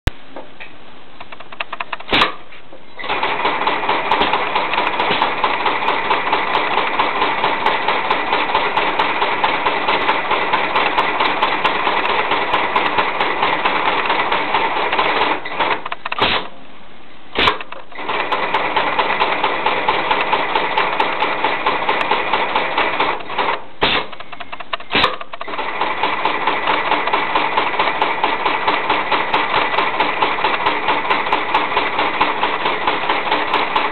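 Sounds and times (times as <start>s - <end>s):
sewing machine stitching: 3.0s - 16.4s, 17.4s - 33.9s.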